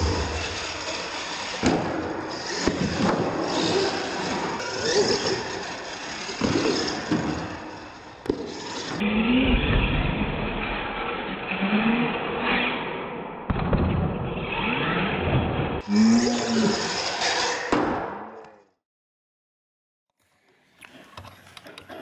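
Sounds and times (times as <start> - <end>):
electric motors revving: 0.0 - 13.1, 14.6 - 17.7.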